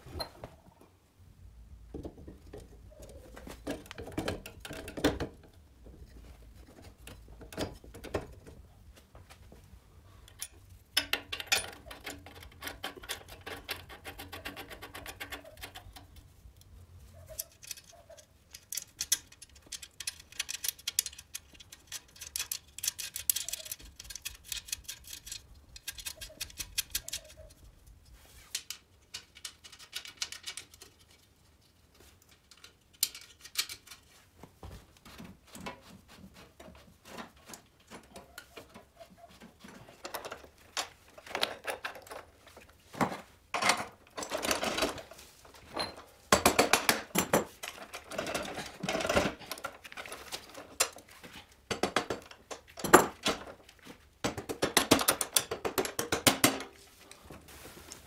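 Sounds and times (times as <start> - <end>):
metal clicks and rattles of tools: 3.7 - 5.6, 10.3 - 27.6, 28.5 - 34.1, 40.0 - 42.7, 43.5 - 56.8.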